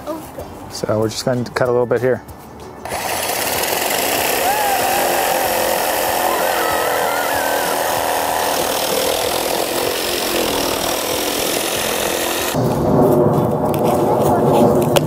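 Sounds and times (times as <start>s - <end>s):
reciprocating saw cutting coconut: 2.9s - 12.6s
child squealing: 4.4s - 9.1s.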